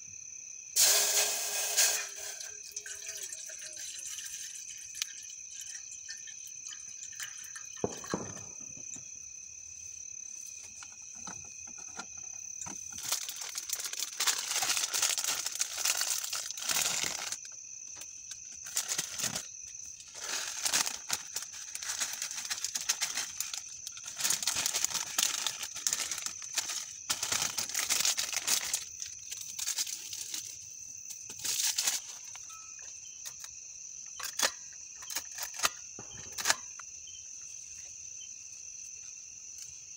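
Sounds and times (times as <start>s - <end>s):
crickets trilling: 0.0s - 39.9s
plastic packets crinkling and tearing: 12.9s - 17.5s, 18.6s - 30.5s.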